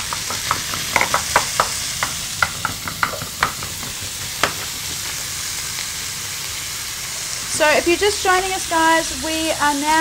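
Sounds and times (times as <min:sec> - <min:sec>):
spatula tapping and scraping pan: 0:00.0 - 0:05.0
meat sizzling in oil: 0:00.0 - 0:10.0.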